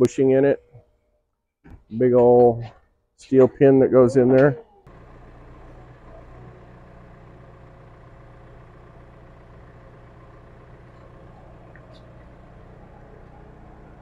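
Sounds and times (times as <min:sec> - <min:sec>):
heavy equipment engine idling: 0:04.9 - 0:14.0.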